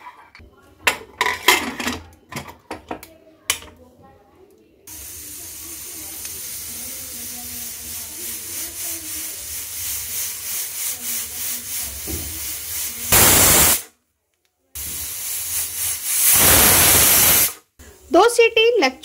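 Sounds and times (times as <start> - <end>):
pressure cooker valve hissing: 4.9 - 13.9, 14.8 - 17.6.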